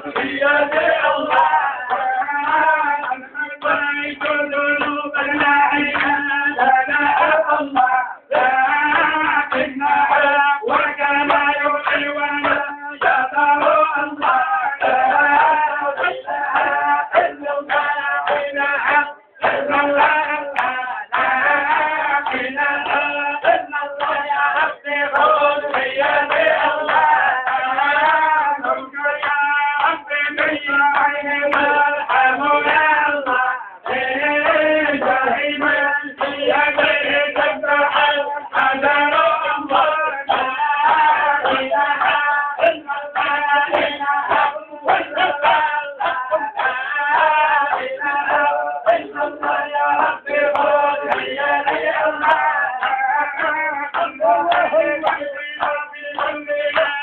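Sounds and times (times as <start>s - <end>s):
men singing to music: 0.0s - 57.0s.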